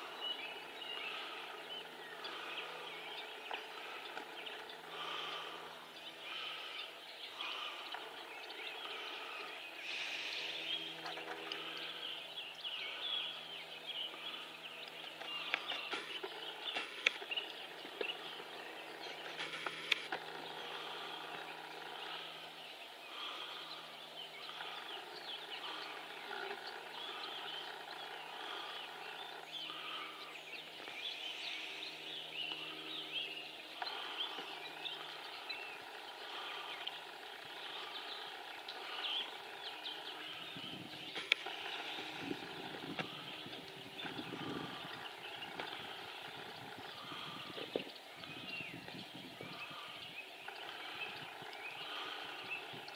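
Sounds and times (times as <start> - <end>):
birds chirping: 0.0 - 52.9
steady low hum: 0.0 - 52.9
sharp clicks: 14.8 - 18.2, 19.2 - 20.3, 41.1 - 44.2.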